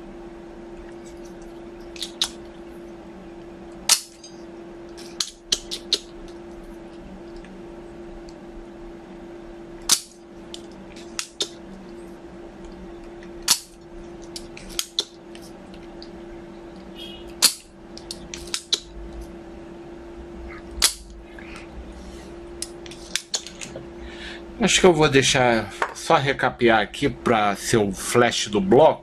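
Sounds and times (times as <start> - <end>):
steady low hum: 0.0 - 29.0
desoldering pump snapping: 1.1 - 2.6, 3.4 - 4.3, 9.8 - 11.9, 12.6 - 16.2, 16.8 - 19.2, 20.7 - 21.2, 22.6 - 23.8.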